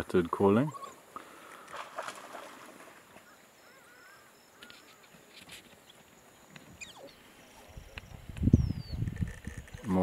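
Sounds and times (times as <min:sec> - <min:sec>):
wild dogs chirping: 0:00.6 - 0:01.8, 0:03.1 - 0:05.2, 0:06.6 - 0:09.9.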